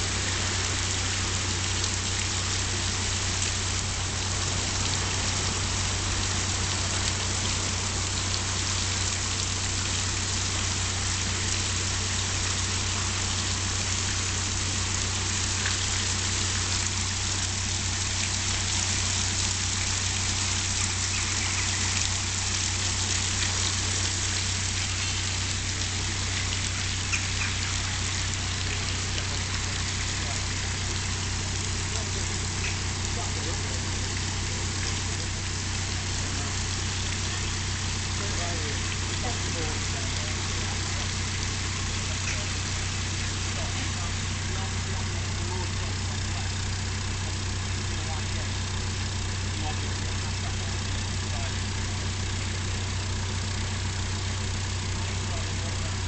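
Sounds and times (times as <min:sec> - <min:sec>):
diesel engine idling: 0:00.0 - 0:56.0
water rushing into lock: 0:00.0 - 0:56.0.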